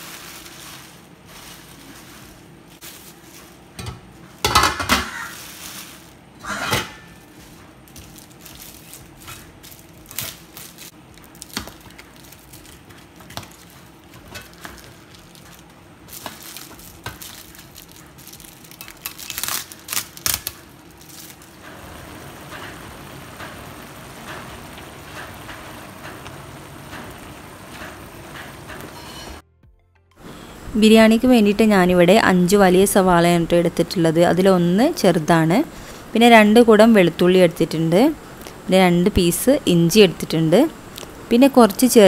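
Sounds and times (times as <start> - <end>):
plastic wrapping crinkling: 0.0 - 3.8, 5.1 - 6.3, 7.2 - 21.8
metal pots and lids clinking: 3.8 - 5.4, 6.4 - 7.3
food sizzling in a pan: 21.2 - 29.4.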